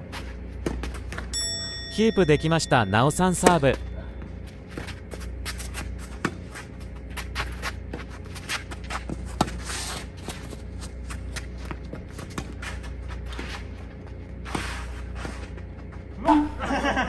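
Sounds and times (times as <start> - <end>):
scuffing footsteps on court: 3.6 - 16.6.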